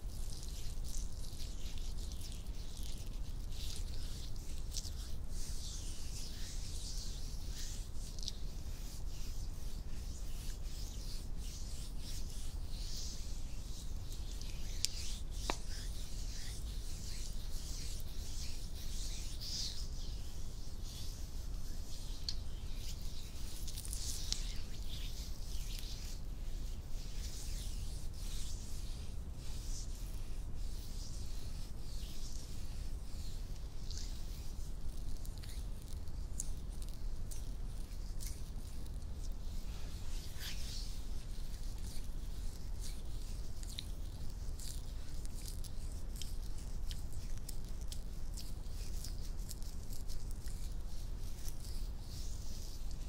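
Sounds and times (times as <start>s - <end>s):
hands rubbing skin: 0.0s - 53.0s.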